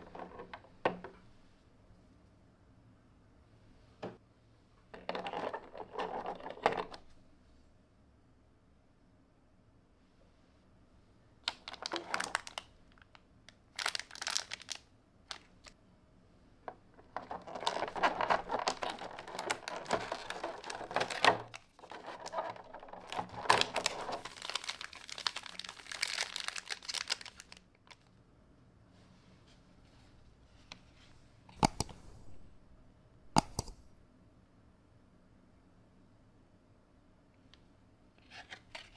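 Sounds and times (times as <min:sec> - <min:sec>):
plastic tray rustling: 0:05.0 - 0:07.0, 0:11.5 - 0:12.7, 0:16.7 - 0:28.0
foil wrappers crinkling: 0:11.5 - 0:15.7, 0:17.1 - 0:28.1.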